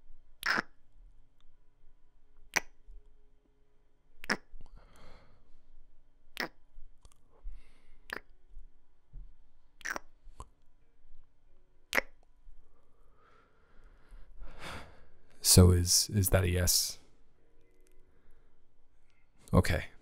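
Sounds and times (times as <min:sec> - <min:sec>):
soft breaths: 0:04.6 - 0:06.0, 0:07.2 - 0:08.8, 0:12.5 - 0:15.4, 0:17.0 - 0:19.5
wet lip smacks: 0:08.1 - 0:08.3, 0:09.8 - 0:10.5, 0:11.9 - 0:12.2.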